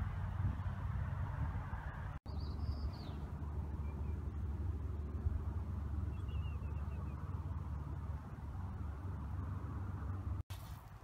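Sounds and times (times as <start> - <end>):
faint bird chirps: 6.1 - 7.4.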